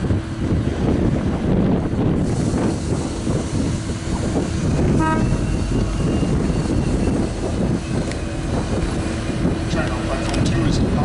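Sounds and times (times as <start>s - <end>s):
diesel locomotive rumble: 0.0s - 11.0s
locomotive horn toot: 4.8s - 8.4s.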